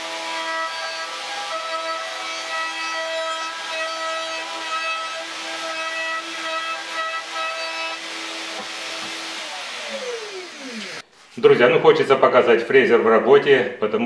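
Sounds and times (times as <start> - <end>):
router whining cutting wood: 0.0 - 11.0.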